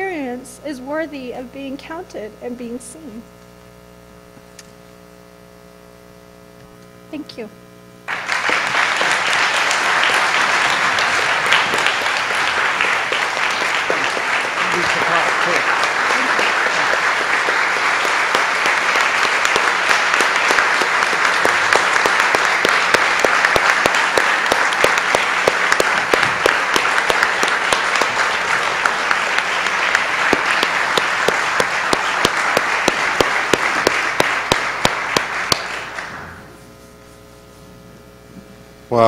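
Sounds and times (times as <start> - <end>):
audience applauding: 8.1 - 36.5.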